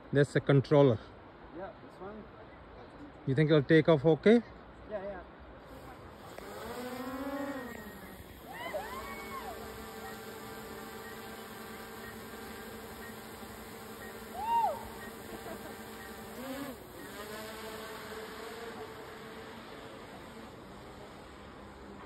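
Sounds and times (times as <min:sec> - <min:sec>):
drone propellers buzzing: 0:05.7 - 0:22.0
rising and falling cry: 0:07.5 - 0:09.8, 0:14.3 - 0:15.2.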